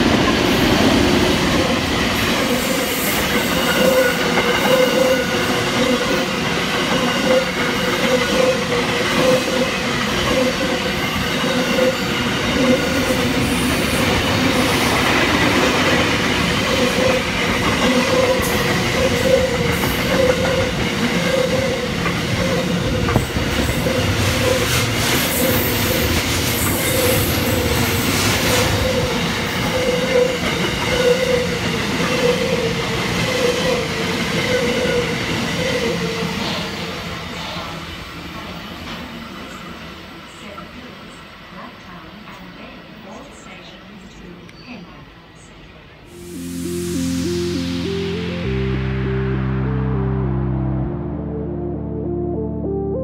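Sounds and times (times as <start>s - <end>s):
ringing rail tone: 46.1s - 49.7s.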